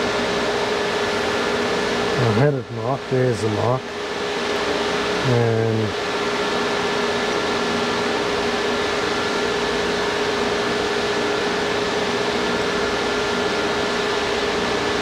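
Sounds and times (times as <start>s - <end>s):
fan running: 0.0s - 15.0s.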